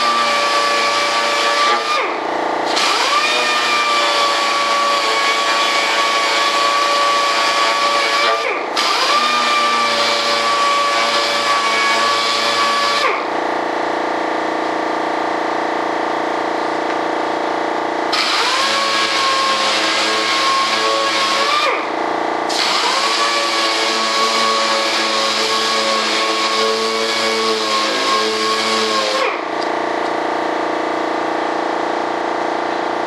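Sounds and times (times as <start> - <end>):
small power tool motor whining: 0.0 - 13.3, 18.1 - 29.6
low machine hum: 10.2 - 22.6, 29.3 - 33.0.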